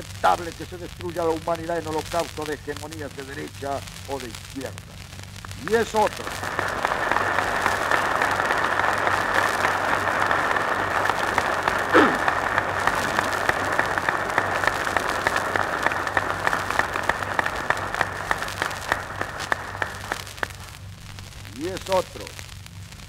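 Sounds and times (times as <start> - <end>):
muffled audience applause: 5.6 - 20.9
person crying out: 11.9 - 12.3.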